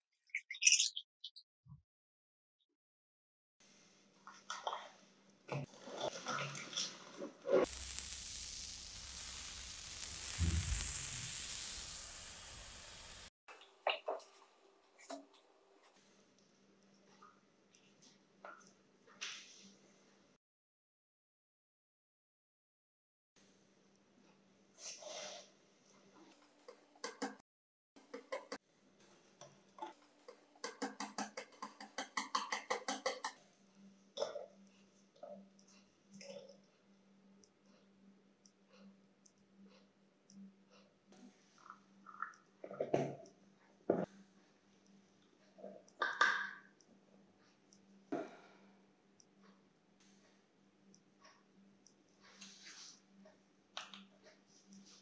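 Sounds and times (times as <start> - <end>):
sugar pouring into glass bowl: 7.6 - 13.3.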